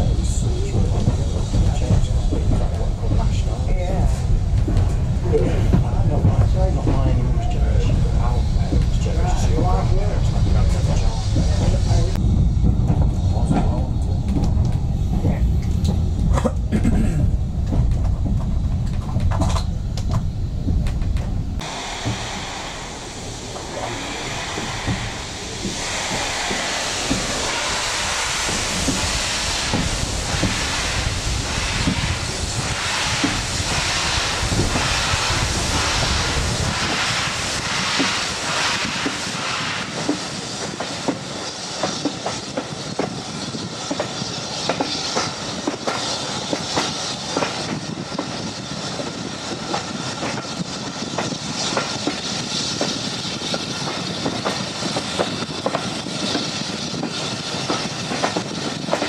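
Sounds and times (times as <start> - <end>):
heavy rumble: 0.0 - 59.0
steam exhaust beating and hissing: 0.0 - 59.0
train wheels clicking over rail joints: 8.6 - 22.6, 37.6 - 59.0.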